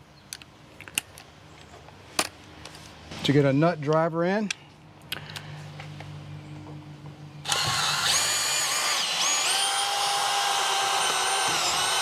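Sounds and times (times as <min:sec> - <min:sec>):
cordless drill driving screw: 0:07.5 - 0:12.0.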